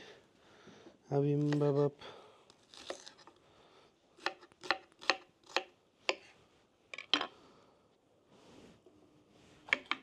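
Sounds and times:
knife chopping on cutting board: 4.2 - 6.3.

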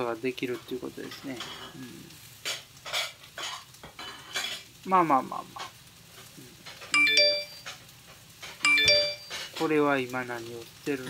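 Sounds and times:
onions sizzling in a frying pan: 0.0 - 11.0
electronic chime: 7.0 - 7.8, 8.6 - 9.4.

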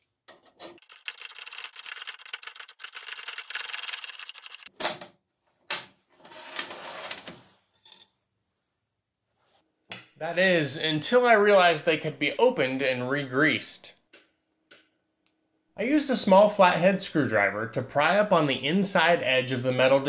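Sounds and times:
rapid ratchet clicking: 0.8 - 4.7.

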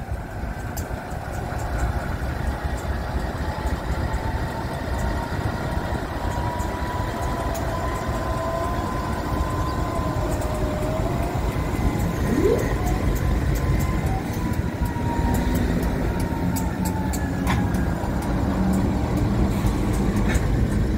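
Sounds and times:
diesel locomotive engine rumble: 0.0 - 20.9
train running noise: 0.0 - 20.9
faint thin whining tone: 12.2 - 13.0.

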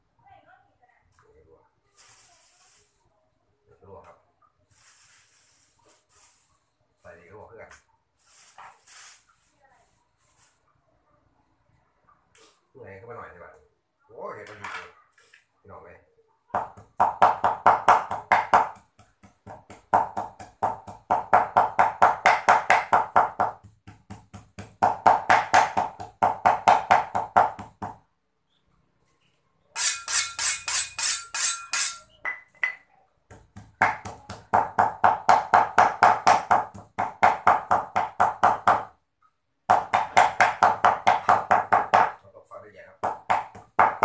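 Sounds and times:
cleaver chopping on wooden block: 16.6 - 28.0.

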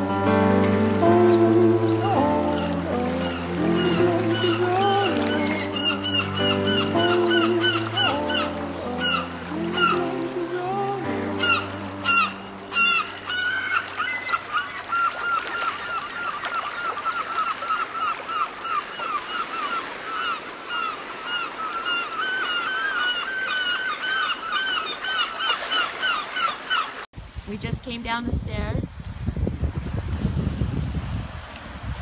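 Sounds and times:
animals honking in chorus: 1.2 - 14.5.

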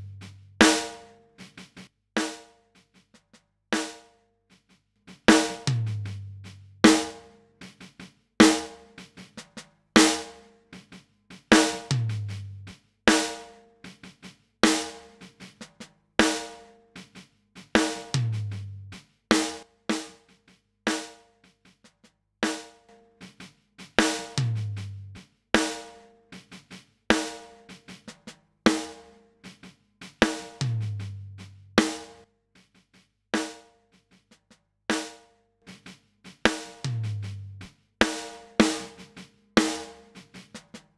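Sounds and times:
bass drum: 0.0 - 0.9, 5.3 - 7.3, 11.6 - 12.8, 17.7 - 19.5, 24.0 - 25.2, 30.2 - 32.2, 36.3 - 40.7.

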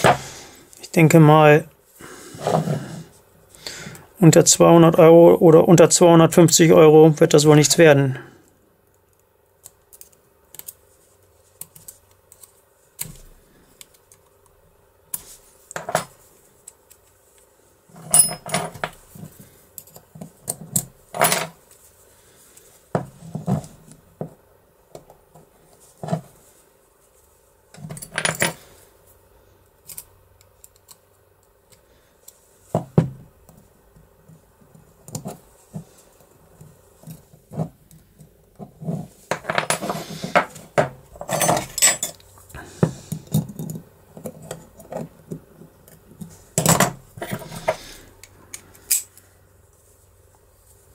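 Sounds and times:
needle file scraping metal parts: 46.2 - 49.2.

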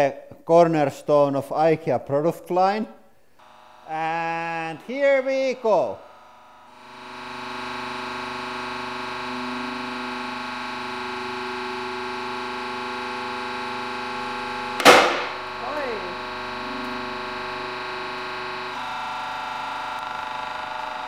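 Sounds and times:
hydraulic press humming: 5.8 - 19.8
board snapping with sharp crack: 14.8 - 15.4.

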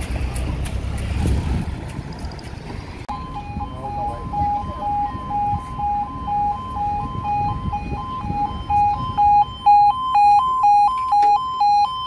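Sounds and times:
level crossing two-tone alarm: 3.1 - 12.0.

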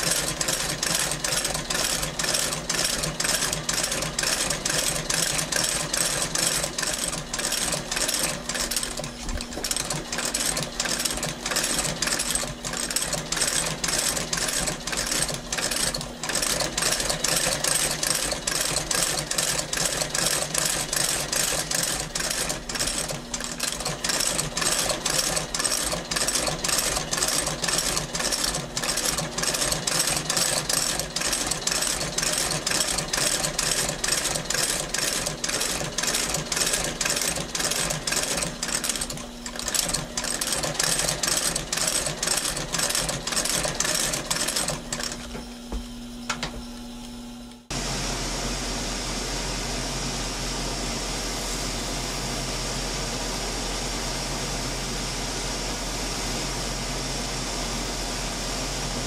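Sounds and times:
stitching machine needle striking: 0.0 - 45.3.

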